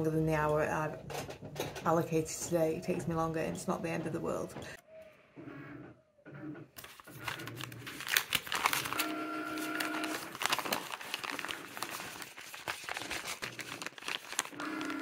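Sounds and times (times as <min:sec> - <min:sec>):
printer humming: 0:06.8 - 0:12.3, 0:13.0 - 0:15.0
paper envelope crinkling: 0:06.8 - 0:15.0.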